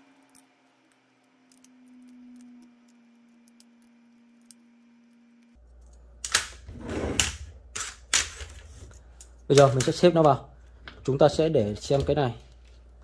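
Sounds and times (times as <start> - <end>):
battery cells clacking together: 0.0 - 6.6
low steady hum: 0.0 - 13.0.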